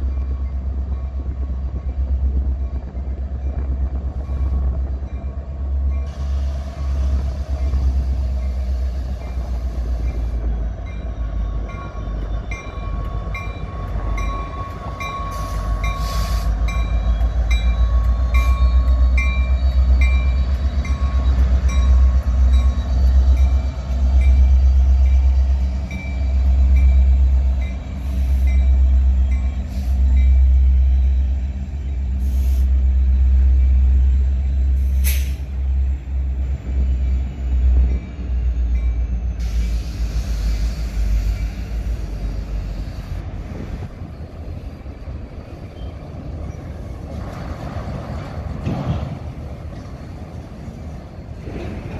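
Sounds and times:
locomotive engines rumbling: 0:00.0 - 0:51.9
metallic clanks from train cars: 0:45.4 - 0:51.9.

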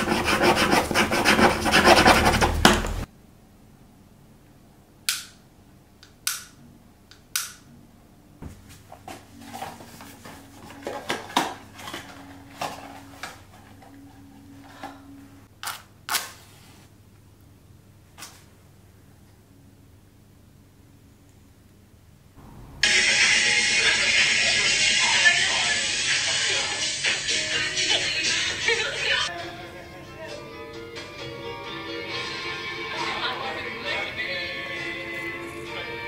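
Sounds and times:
pen scribbling on paper: 0:00.0 - 0:02.7.

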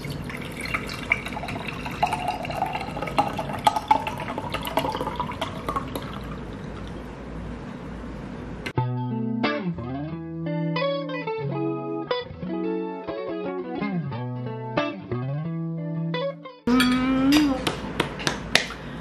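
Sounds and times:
soda pouring and fizzing: 0:00.0 - 0:07.1.

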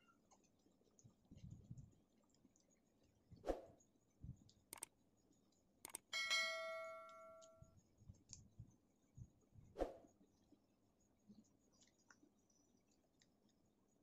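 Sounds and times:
eating and finger-licking: 0:04.5 - 0:05.0
mouse clicks: 0:04.7 - 0:04.9, 0:05.8 - 0:06.1
bright bell ding: 0:06.2 - 0:07.6.

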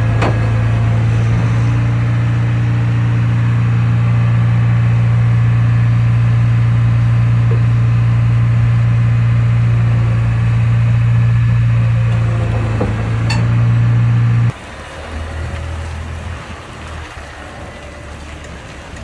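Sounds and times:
diesel engine running: 0:00.0 - 0:19.0
metal clank: 0:12.5 - 0:13.8.

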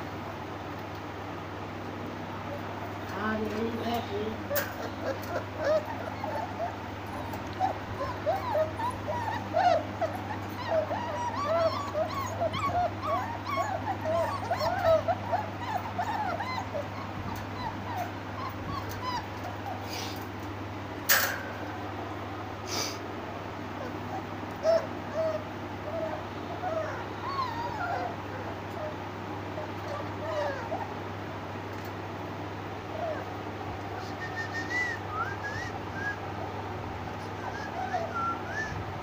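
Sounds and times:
puppies whimpering and yipping: 0:03.8 - 0:20.4, 0:23.6 - 0:31.0, 0:32.8 - 0:39.0.

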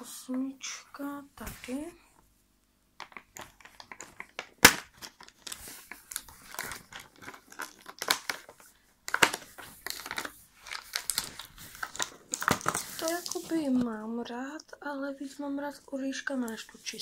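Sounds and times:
cardboard crinkling and tearing: 0:03.4 - 0:13.8
cardboard snapping: 0:03.8 - 0:13.4.

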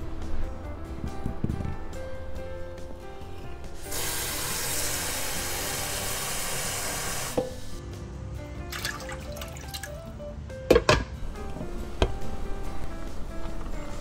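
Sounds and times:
background music: 0:00.0 - 0:14.0
water running from tap: 0:03.8 - 0:07.4, 0:08.7 - 0:10.0.

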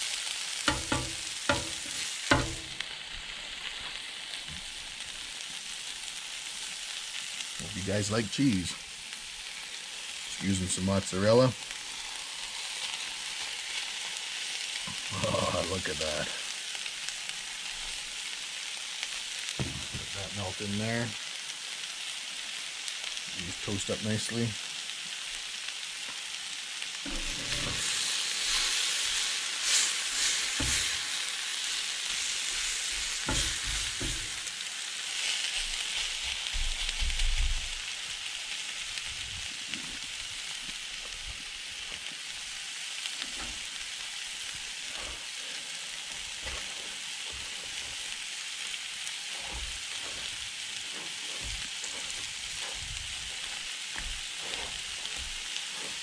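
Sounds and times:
food sizzling on a griddle: 0:00.0 - 0:56.0
knocks: 0:00.7 - 0:02.7.

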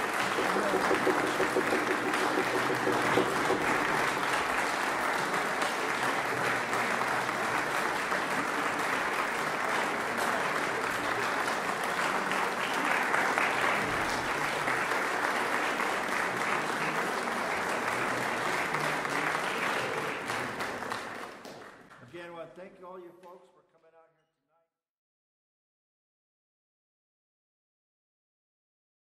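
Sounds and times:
audience applauding: 0:00.0 - 0:22.0.

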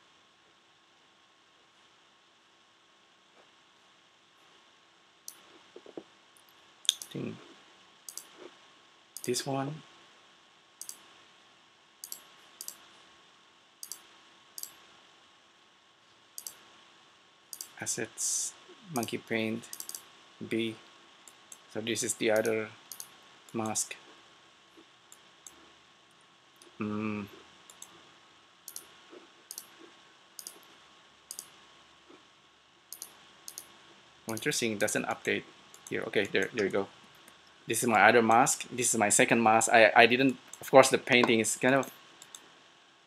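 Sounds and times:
faint steady hum: 0:00.0 - 0:43.0
computer mouse buttons clicking: 0:06.9 - 0:07.2, 0:08.1 - 0:08.4, 0:09.2 - 0:09.4, 0:10.8 - 0:11.0, 0:12.0 - 0:12.8, 0:13.8 - 0:14.8, 0:16.4 - 0:16.6, 0:17.5 - 0:17.8, 0:19.0 - 0:20.0, 0:22.3 - 0:23.8, 0:28.7 - 0:28.9, 0:29.5 - 0:29.7, 0:30.4 - 0:30.7, 0:31.3 - 0:31.6, 0:32.9 - 0:33.7, 0:42.2 - 0:42.5.

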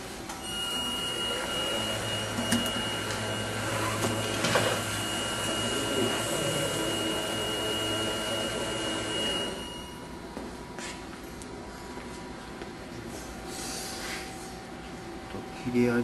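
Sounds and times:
machine humming: 0:00.0 - 0:10.8
machine high whine: 0:00.3 - 0:10.4.

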